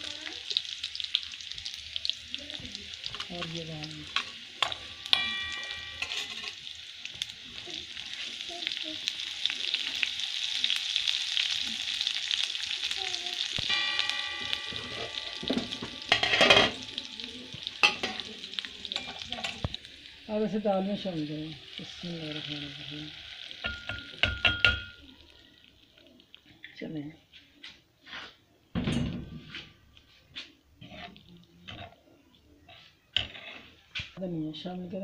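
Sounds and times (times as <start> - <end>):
spices sizzling in hot oil: 0.0 - 28.4, 29.0 - 34.7
metal spoon scraping pan: 3.0 - 6.8, 13.7 - 19.8, 29.4 - 32.0, 32.7 - 34.2.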